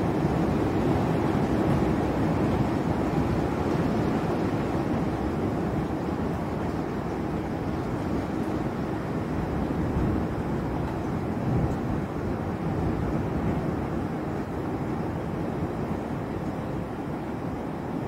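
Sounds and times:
thunderstorm rushing noise: 9.4 - 14.1.

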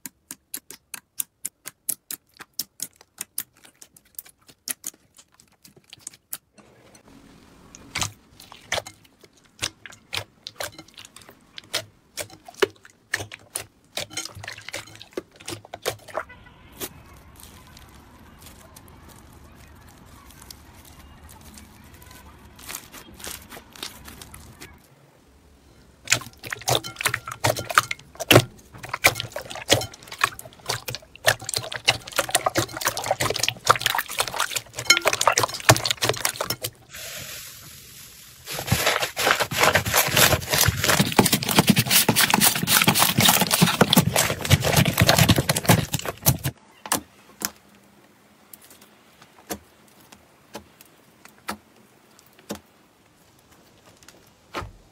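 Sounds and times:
slime squelching and popping: 0.0 - 6.5, 26.0 - 36.9, 38.5 - 46.6.

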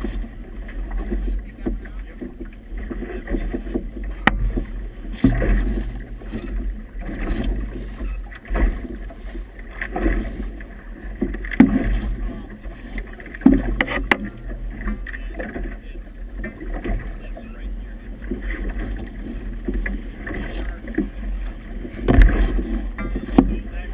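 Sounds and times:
waves slapping against boat hull: 0.0 - 23.9
sharp knocks: 22.0 - 23.6.

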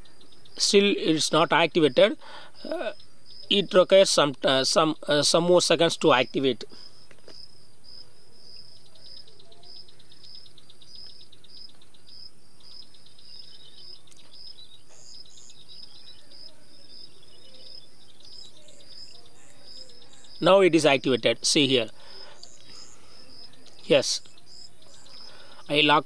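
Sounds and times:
insects chirping: 0.0 - 26.0
insects trilling: 0.0 - 26.0
high bird-like chirps: 8.4 - 26.0.

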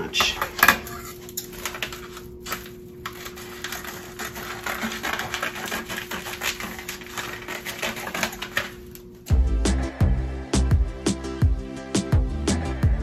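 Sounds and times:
scissors cutting plastic: 0.2 - 9.1.

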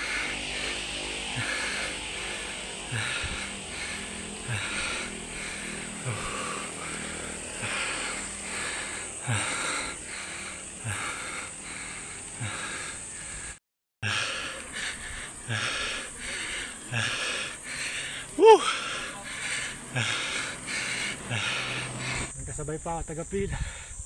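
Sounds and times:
heavy rhythmic breathing: 0.0 - 22.4, 23.3 - 24.0
wind and road hiss: 0.0 - 24.0.

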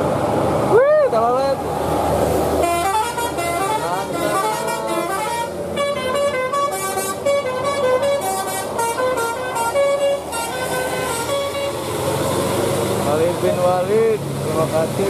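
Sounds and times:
bus engine passing: 0.0 - 15.0
musical air horn playing a tune: 2.6 - 11.9.

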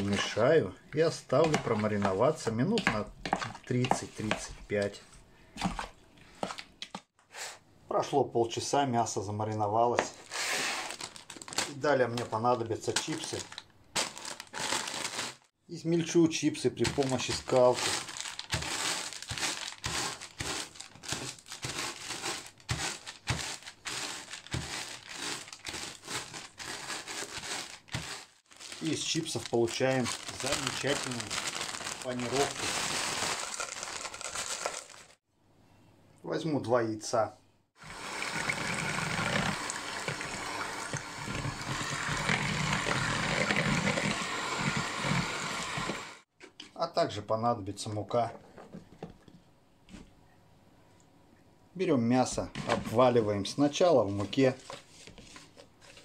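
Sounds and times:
plastic bag crinkling: 10.2 - 12.4, 13.0 - 15.5, 16.7 - 35.2
chips crackling: 16.8 - 35.2
hand mixer motor whir: 37.8 - 46.2.

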